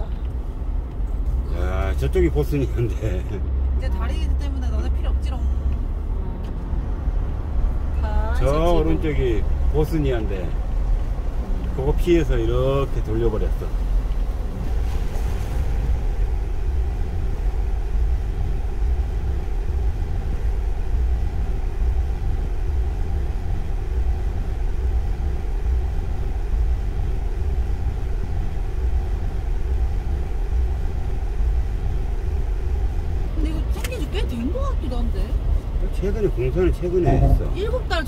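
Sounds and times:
tyre and engine rumble in car: 0.0 - 38.0.

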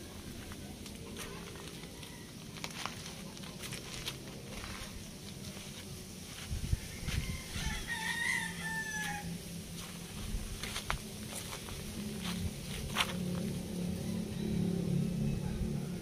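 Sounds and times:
distant rooster crowing: 0.0 - 3.2, 6.6 - 9.9, 13.8 - 16.0.

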